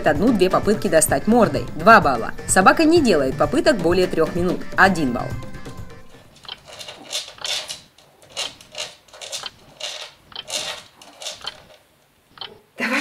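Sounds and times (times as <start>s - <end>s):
dog paws scratching floor: 6.2s - 12.0s.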